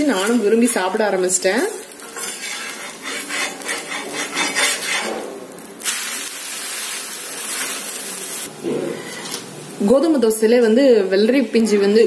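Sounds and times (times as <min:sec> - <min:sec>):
metal spatula scraping pan: 0:00.0 - 0:00.9, 0:02.0 - 0:05.3
dosa sizzling on pan: 0:00.0 - 0:10.3.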